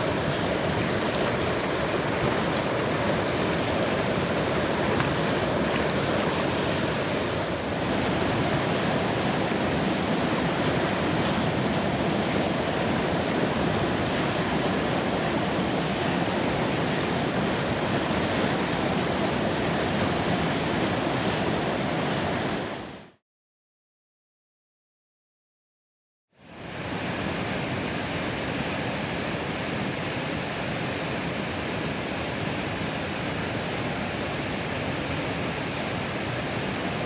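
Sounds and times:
whitewater rushing: 0:00.0 - 0:23.1, 0:26.6 - 0:37.0.

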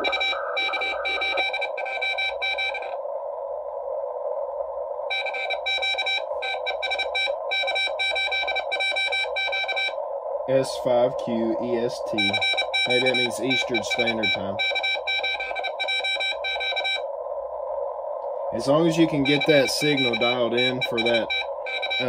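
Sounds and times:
morse code beeping tone: 0:00.0 - 0:03.0, 0:05.1 - 0:10.0, 0:12.1 - 0:17.0, 0:19.1 - 0:22.0
receiver hiss: 0:00.0 - 0:22.0.

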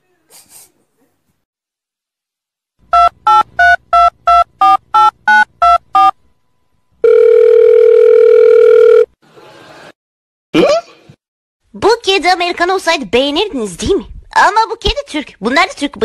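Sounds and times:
telephone line tone: 0:07.0 - 0:09.1.

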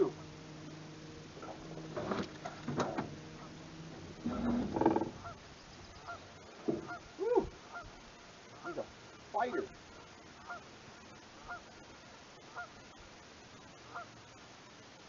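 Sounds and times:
geese honking: 0:00.0 - 0:08.9, 0:10.4 - 0:10.7, 0:11.4 - 0:11.8, 0:12.5 - 0:12.8, 0:13.9 - 0:14.2
knocks and rattles in metal boat: 0:01.4 - 0:05.4, 0:06.6 - 0:07.0.

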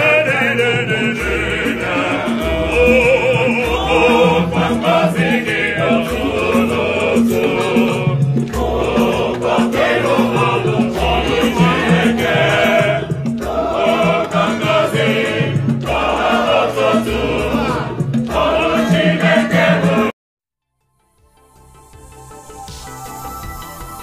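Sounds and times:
choir singing: 0:00.0 - 0:20.2.

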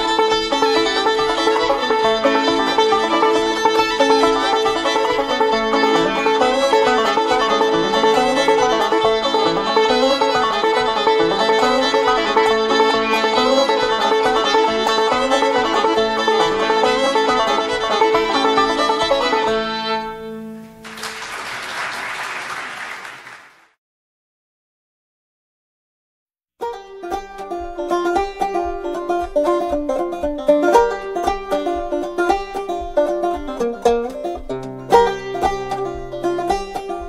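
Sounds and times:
banjo and fiddle string band: 0:00.0 - 0:20.8, 0:26.6 - 0:37.0
audience applause: 0:20.8 - 0:23.8.

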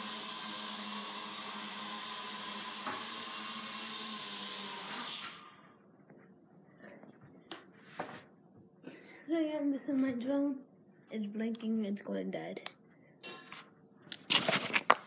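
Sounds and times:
toy drone motors whining: 0:00.0 - 0:05.6.

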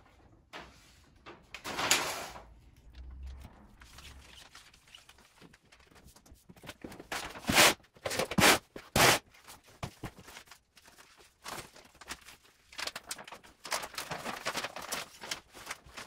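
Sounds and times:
backing paper peeling swishes: 0:03.8 - 0:06.5.

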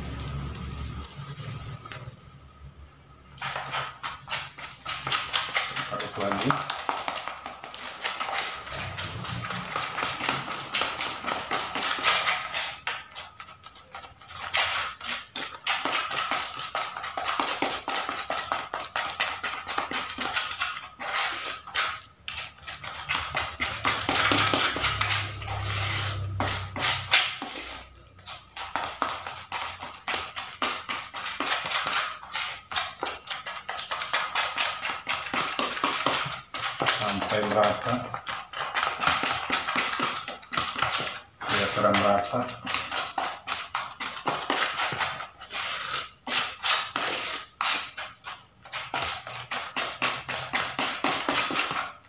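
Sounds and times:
hand kneading dough in plastic bowl: 0:00.0 - 0:52.0.

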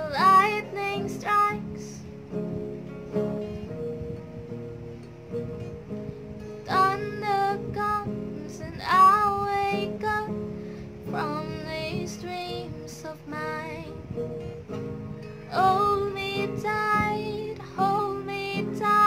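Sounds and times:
woman singing: 0:00.0 - 0:02.1, 0:06.6 - 0:14.7, 0:15.4 - 0:19.0
acoustic guitar chords: 0:00.0 - 0:19.0.

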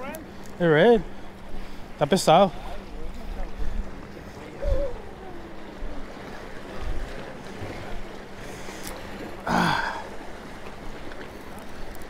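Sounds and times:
surf washing against rocks: 0:00.0 - 0:12.0
wind buffeting microphone: 0:01.3 - 0:09.3.

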